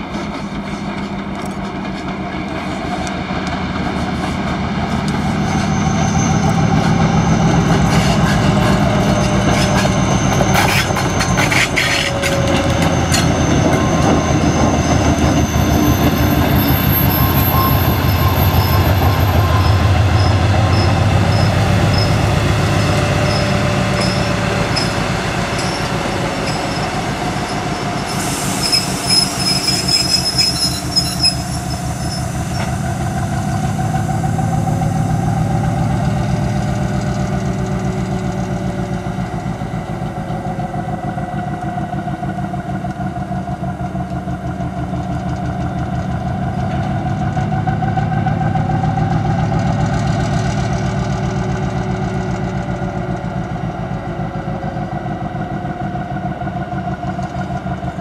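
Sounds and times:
diesel engine drone: 3.0 - 29.2, 31.8 - 58.0
wheel squeal: 5.1 - 34.1
wheels clattering over rail joints: 7.8 - 16.2.

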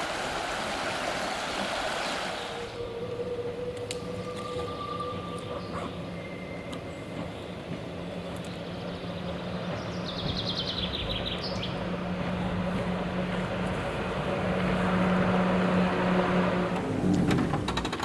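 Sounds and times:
bird singing: 1.3 - 13.0
tram motor hum and rolling wheels: 2.5 - 18.0
car passing: 9.4 - 17.9.

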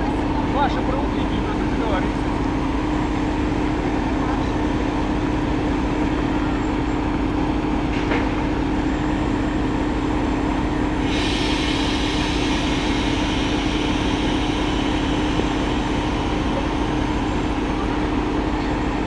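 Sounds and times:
diesel locomotive engine humming: 0.0 - 19.0
high air hiss: 11.0 - 17.3.

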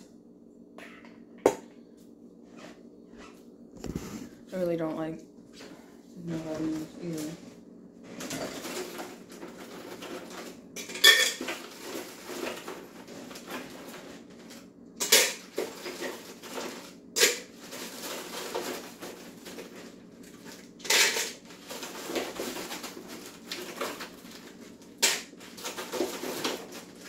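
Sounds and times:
sharp clatters of containers: 8.2 - 13.7, 20.8 - 24.1.

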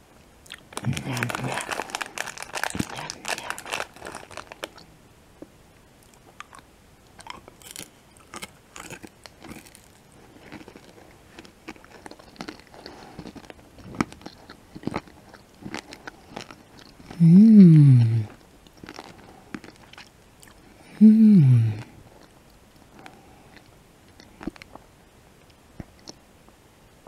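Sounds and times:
candy crunching: 0.4 - 4.9, 6.0 - 17.2, 18.3 - 20.7
person humming: 17.2 - 18.3, 20.9 - 21.9.

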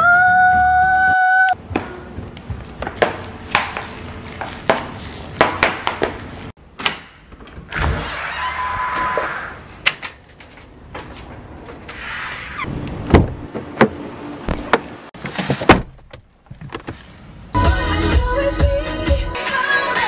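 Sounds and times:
door thunks: 13.1 - 14.8, 15.5 - 17.0.

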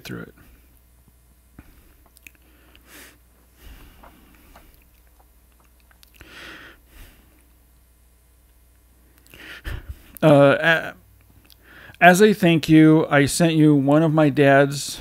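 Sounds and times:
man breathing and sniffing: 1.6 - 5.3, 6.1 - 7.5, 9.0 - 10.2, 11.5 - 12.0.

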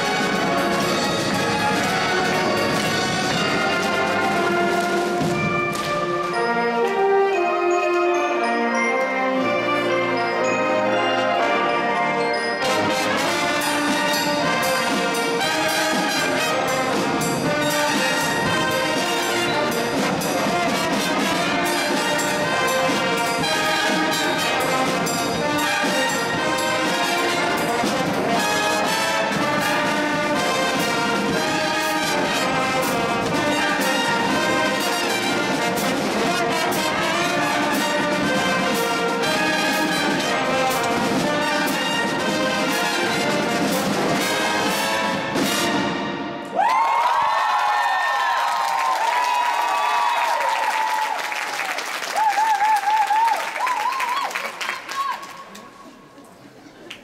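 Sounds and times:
snare and bass drums beating: 0.0 - 6.4, 12.9 - 45.9
brass band playing: 0.0 - 46.6.

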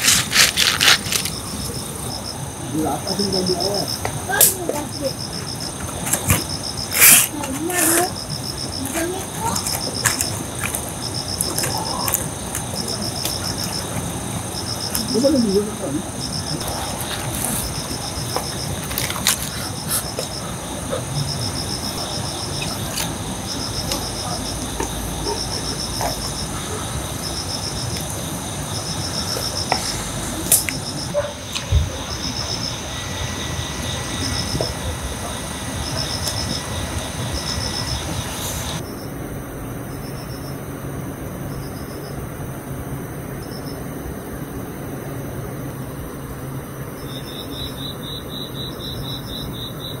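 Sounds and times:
high-pitched insect drone: 0.0 - 39.1
crickets chirping: 0.0 - 50.0
steady low rumble: 8.2 - 41.6.

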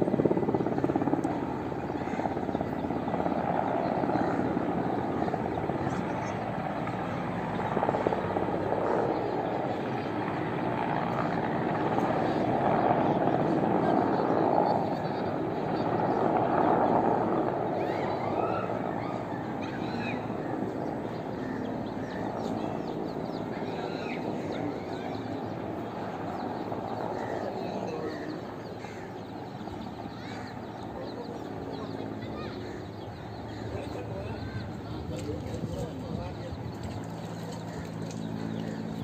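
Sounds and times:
helicopter flying overhead: 0.0 - 39.0.

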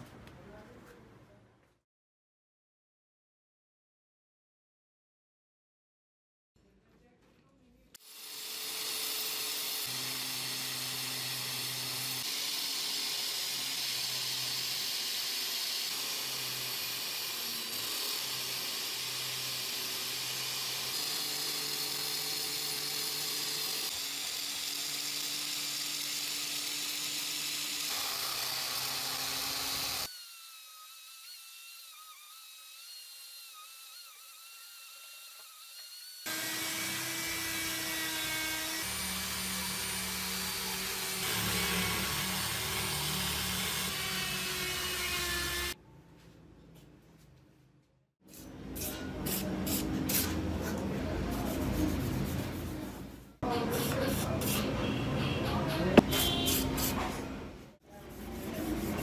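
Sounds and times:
angle grinder grinding steel: 8.0 - 45.8.

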